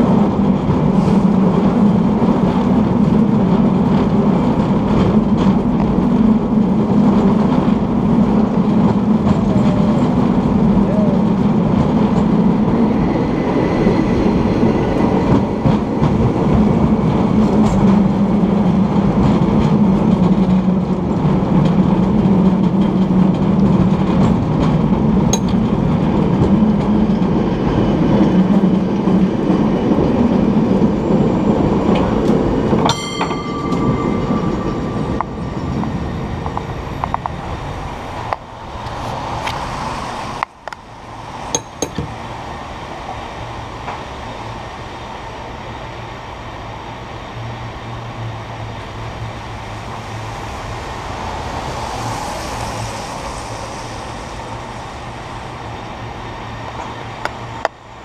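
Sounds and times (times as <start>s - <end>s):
cable car rumbling on rails: 0.0s - 58.0s
metallic ring: 32.9s - 36.6s.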